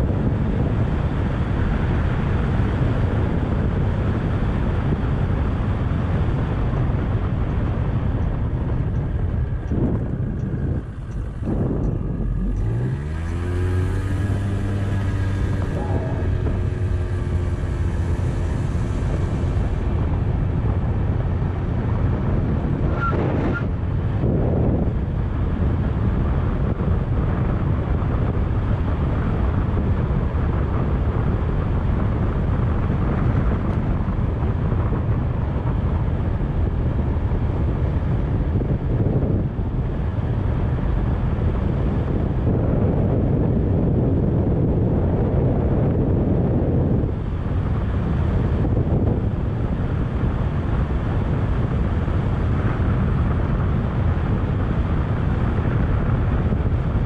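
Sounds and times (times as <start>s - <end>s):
wind noise on microphone: 0.0s - 57.0s
scooter engine accelerating: 8.8s - 24.8s.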